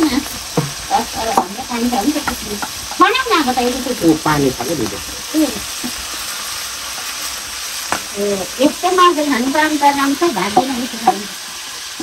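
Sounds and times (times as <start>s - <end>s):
meat sizzling in hot oil: 0.0s - 12.0s
person speaking: 4.0s - 5.0s.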